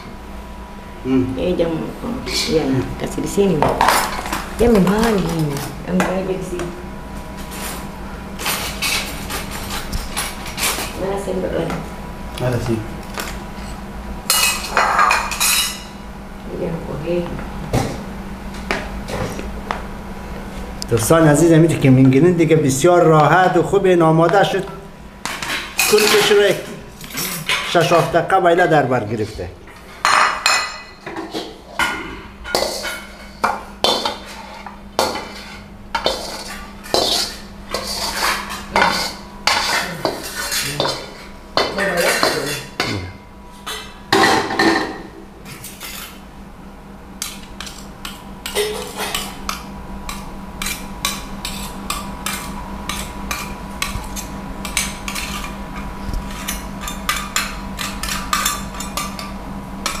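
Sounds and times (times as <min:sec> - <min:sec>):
steady low hum: 0:00.0 - 1:00.0
metal spoon scraping steel bowl: 0:34.2 - 0:42.9.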